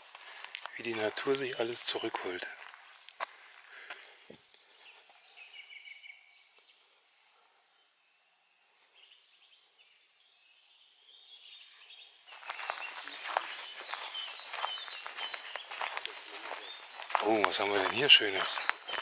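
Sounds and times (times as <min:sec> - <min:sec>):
footsteps on dry ground: 0:00.0 - 0:05.6, 0:12.3 - 0:19.0
songbirds chirping and trilling: 0:00.0 - 0:19.0.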